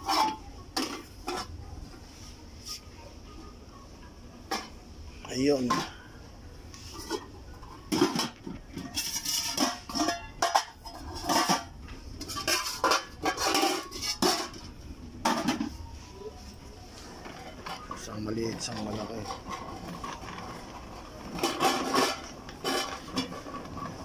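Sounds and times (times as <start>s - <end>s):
metal pots and lids clanking: 0.0s - 1.6s, 4.5s - 4.8s, 5.4s - 6.2s, 6.9s - 15.9s, 17.2s - 24.0s.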